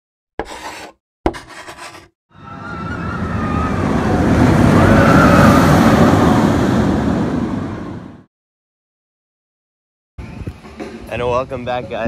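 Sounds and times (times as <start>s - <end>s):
roller coaster rumble and rush: 2.4s - 8.3s.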